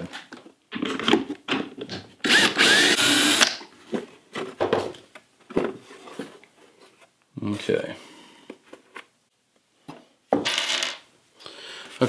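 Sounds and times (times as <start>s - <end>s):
cordless drill whining: 2.3s - 3.5s.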